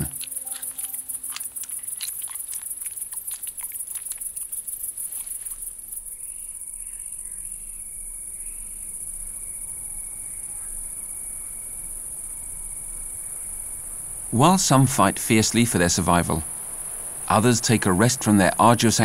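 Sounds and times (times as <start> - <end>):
shrew crunching prey: 0.0 - 5.9
crickets chirring: 0.0 - 19.0.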